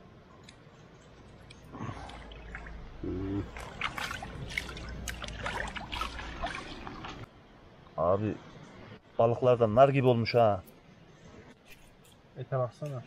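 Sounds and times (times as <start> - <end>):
water splashing over fish: 1.8 - 7.3.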